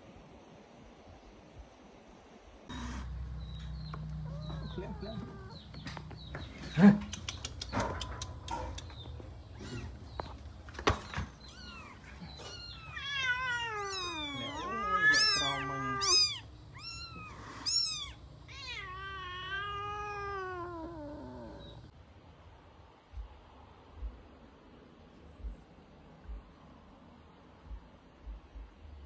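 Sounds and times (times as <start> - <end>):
kitten meowing: 4.2 - 6.2, 9.5 - 10.0, 11.4 - 21.8.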